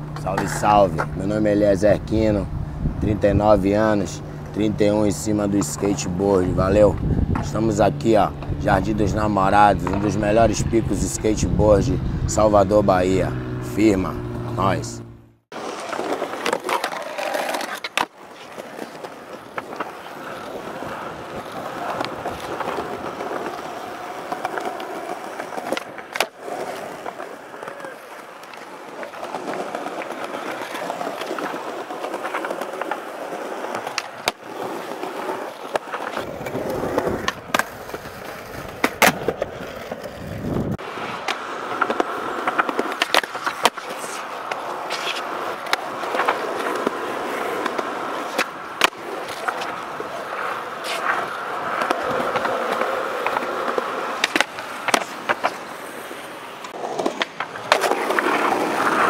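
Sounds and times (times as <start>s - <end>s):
skateboard trucks scraping curb: 0.0s - 14.9s, 15.5s - 59.0s
skateboard wheels rolling on concrete: 0.0s - 59.0s
skateboard clacks: 0.1s - 1.3s, 15.5s - 59.0s.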